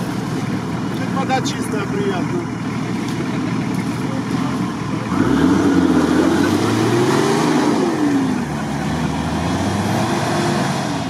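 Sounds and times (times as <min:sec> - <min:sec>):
suv engine revving past: 0:05.1 - 0:11.0.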